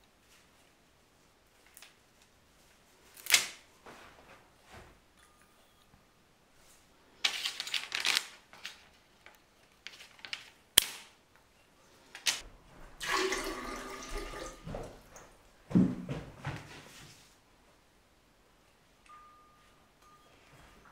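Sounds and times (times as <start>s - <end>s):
paper crinkling: 7.2s - 10.7s
water pouring into vase: 13.0s - 15.0s.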